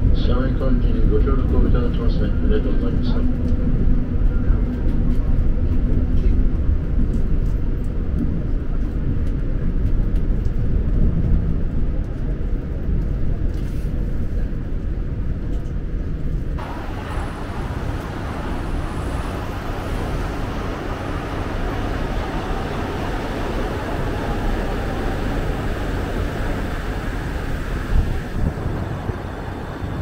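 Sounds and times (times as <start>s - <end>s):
monorail car rumbling: 0.0s - 30.0s
street traffic noise: 16.6s - 30.0s.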